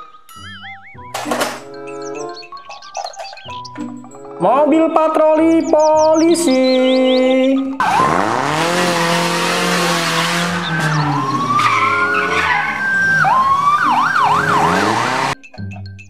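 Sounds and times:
tyres squealing: 0.0 - 15.4
car engine revving: 7.8 - 15.4
siren wailing: 7.8 - 15.4.

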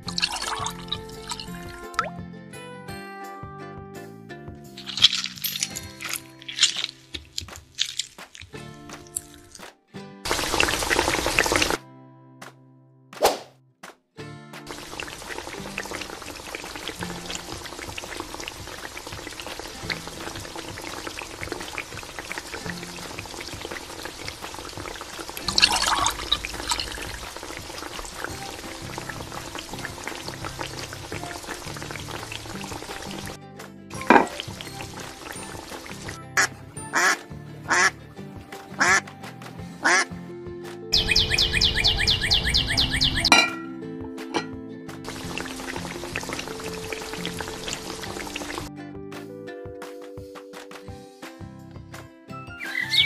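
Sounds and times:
curry bubbling and popping: 0.0 - 2.1, 4.8 - 9.6, 10.3 - 11.8, 14.7 - 36.3, 44.4 - 48.7
soft background music: 0.0 - 12.4, 14.2 - 53.0
duck quacking: 36.4 - 38.0, 38.8 - 39.0, 39.8 - 40.1
high bird chirps: 41.0 - 43.6, 52.6 - 53.0.

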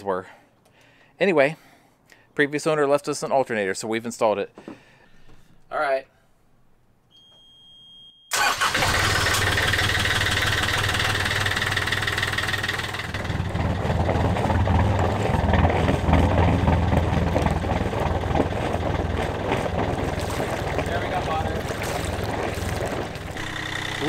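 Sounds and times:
alarm buzzer beep: 7.1 - 8.3
diesel engine starting and idling: 8.3 - 24.0.

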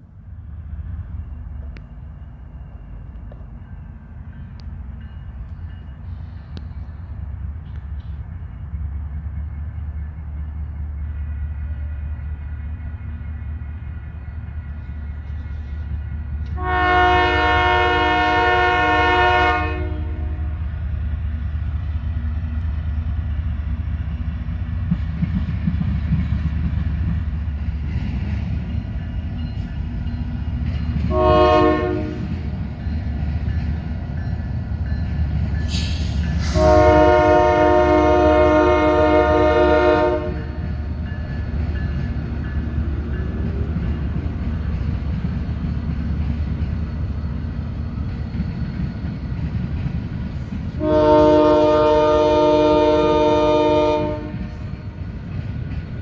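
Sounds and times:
locomotive engine rumble: 0.0 - 56.0
locomotive air horn blasts: 16.6 - 20.7, 31.1 - 32.4, 35.7 - 40.6, 50.8 - 54.6.

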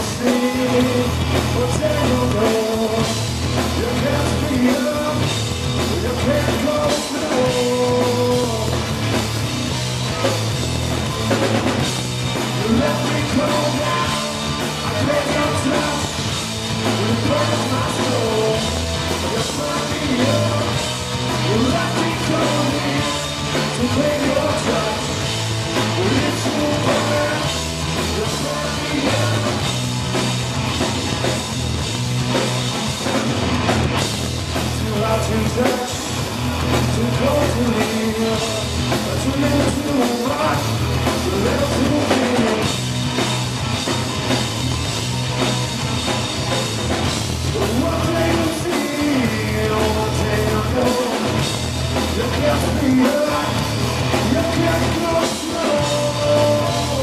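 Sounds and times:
drum kit: 0.0 - 57.0
electric bass: 0.0 - 57.0
electric guitar: 0.0 - 57.0.

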